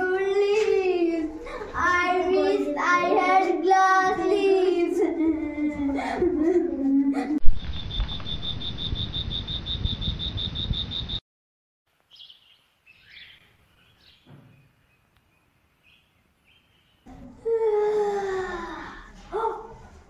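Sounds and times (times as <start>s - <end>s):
cricket chirping: 7.6s - 11.2s
faint bird chirps: 7.6s - 11.2s.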